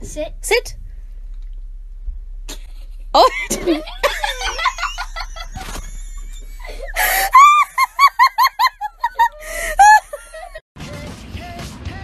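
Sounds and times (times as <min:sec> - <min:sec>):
person laughing high-pitched: 0:02.5 - 0:10.6.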